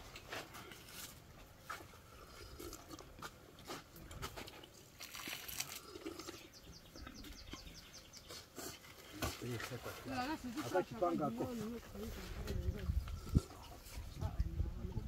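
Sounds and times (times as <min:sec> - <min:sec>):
person slurping from a pot: 0:02.1 - 0:03.8, 0:05.0 - 0:06.6.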